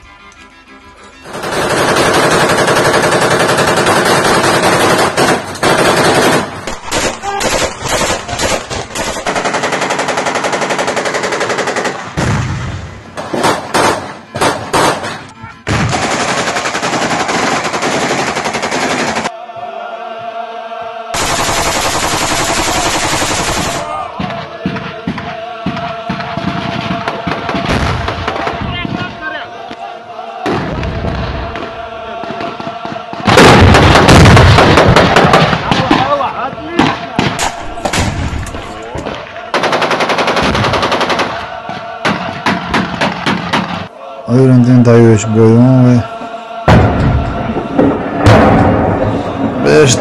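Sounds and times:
automatic rifle fire: 13.2 - 19.2, 21.2 - 23.9, 33.3 - 36.0.

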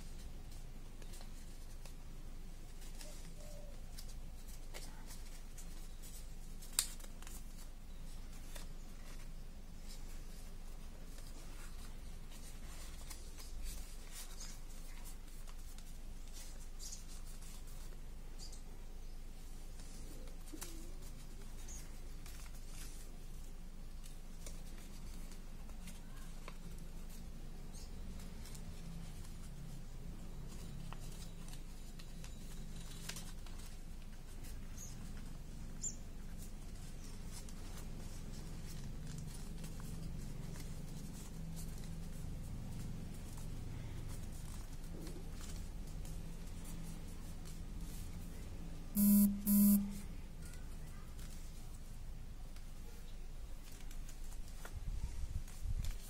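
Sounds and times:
paper rustling and crinkling: 0.0 - 18.7, 19.4 - 48.6, 50.0 - 56.0
faint high chirps: 49.0 - 50.0.

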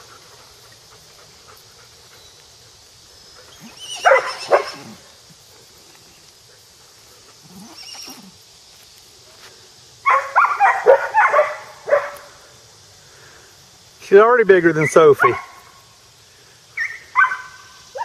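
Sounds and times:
dog barking: 4.0 - 4.9, 10.0 - 12.3, 15.2 - 15.6, 16.8 - 18.0.

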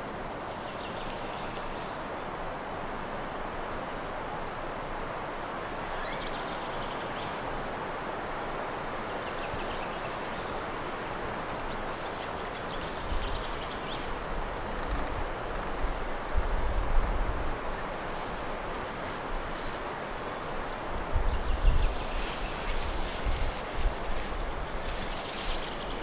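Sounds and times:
rushing outdoor background noise: 0.0 - 26.0
wind rumble on microphone: 12.5 - 19.9, 20.6 - 26.0.

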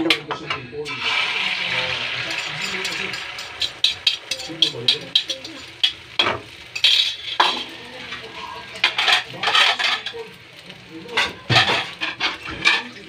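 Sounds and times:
utensils scraping: 0.9 - 6.0, 6.7 - 10.2
metal utensils knocking cookware: 2.1 - 7.7, 8.4 - 10.2, 11.1 - 13.0.

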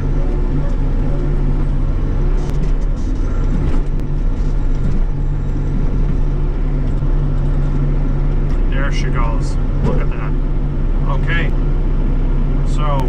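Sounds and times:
hydraulics moving digging arm: 0.0 - 11.4
diesel engine running under load: 0.0 - 13.0.

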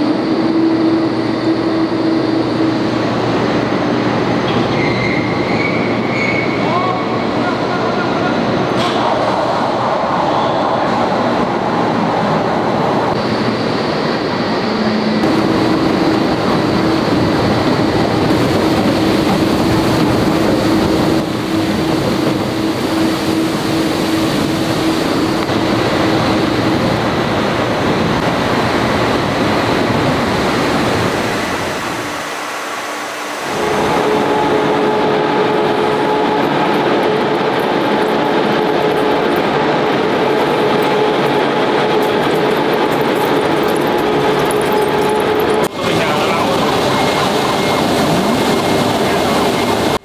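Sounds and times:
steady mechanical rushing: 10.9 - 50.0
steady hum: 11.5 - 50.0
water churning around hot steel: 15.2 - 50.0.

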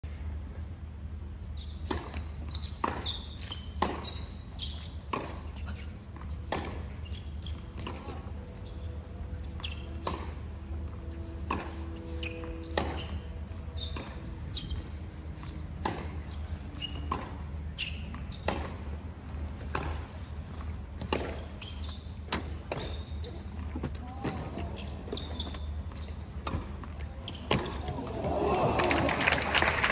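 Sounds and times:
tennis ball hits and bounces: 1.8 - 4.3, 5.0 - 5.5, 6.2 - 6.9, 7.6 - 8.2, 11.4 - 11.8, 12.5 - 13.2, 15.7 - 16.3, 16.9 - 18.8, 19.6 - 20.0, 26.4 - 28.4.

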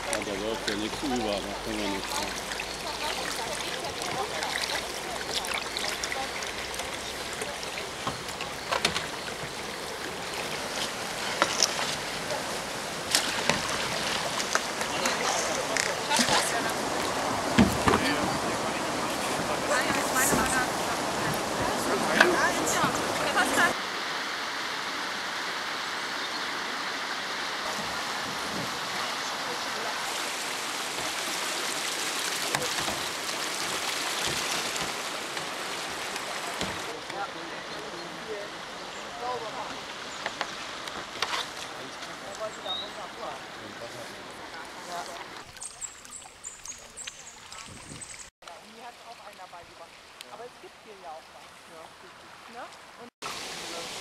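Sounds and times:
paddle splashes and knocks: 0.0 - 23.8, 27.6 - 37.2, 39.4 - 48.3
water washing: 0.0 - 54.0.

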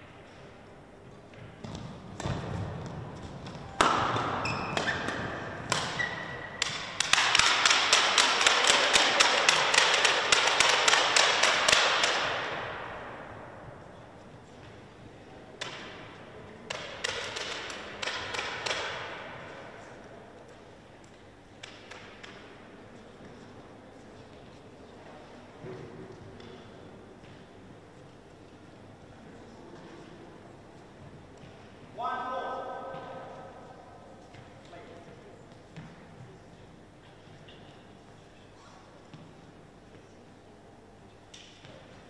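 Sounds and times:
rhythmic clapping: 6.6 - 12.3
scattered claps or knocks: 6.6 - 12.6, 16.7 - 19.1.

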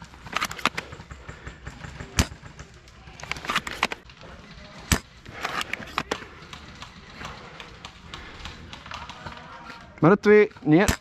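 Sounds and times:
rifle handling clicks and rustling: 0.0 - 0.9, 3.1 - 4.1, 4.8 - 11.0.

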